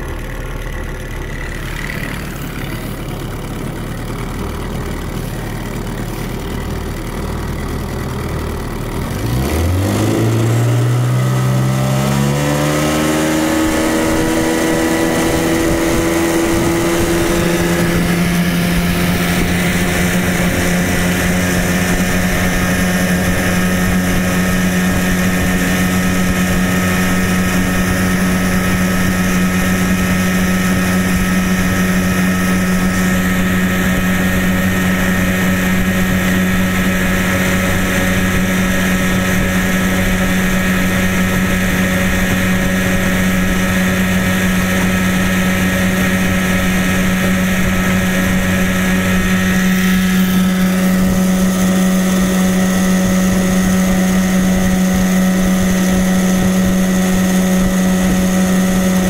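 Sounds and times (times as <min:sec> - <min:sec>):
outboard motor running: 0:00.0 - 0:59.0
water rushing along a hull: 0:00.0 - 0:59.0.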